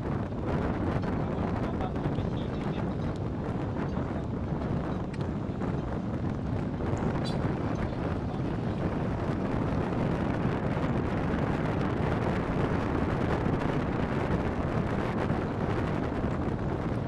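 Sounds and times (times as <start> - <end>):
wind blowing across microphone: 0.0 - 17.0.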